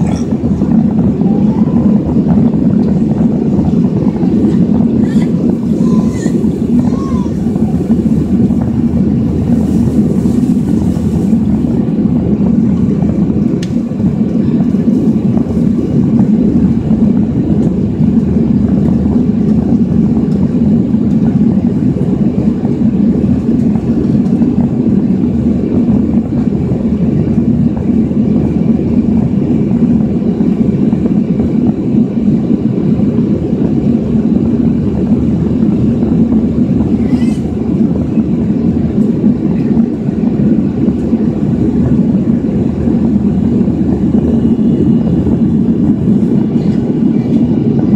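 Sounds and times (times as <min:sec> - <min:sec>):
jet engines rumbling: 0:00.0 - 0:47.9
rushing air: 0:00.0 - 0:47.9.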